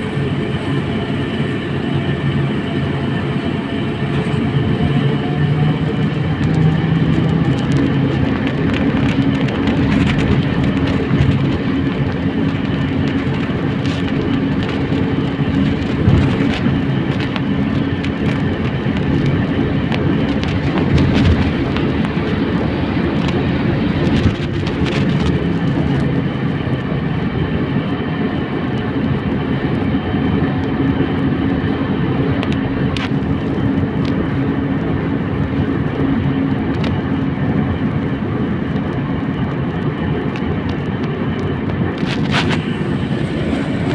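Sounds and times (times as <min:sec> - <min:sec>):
road rumble: 0:00.0 - 0:43.9.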